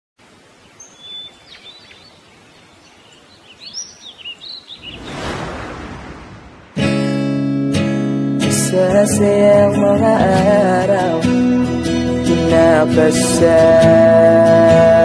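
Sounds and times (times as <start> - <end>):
faint steady hiss: 0.2 - 6.8
small birds chirping: 0.3 - 5.6
rush of noise: 4.8 - 7.2.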